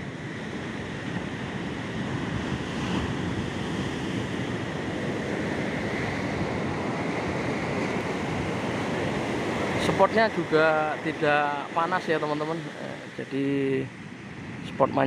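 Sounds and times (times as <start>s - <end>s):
wind on microphone: 0.0s - 11.8s
ocean surf breaking: 0.0s - 15.0s.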